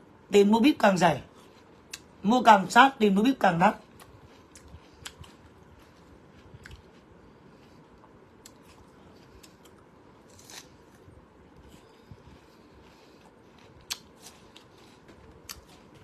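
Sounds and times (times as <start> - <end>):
person biting and chewing food: 3.8 - 16.0.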